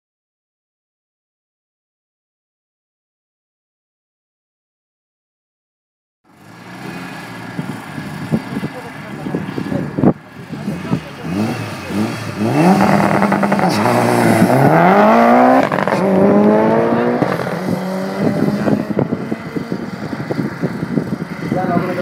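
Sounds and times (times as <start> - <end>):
car engine revving on launch: 10.6 - 21.0.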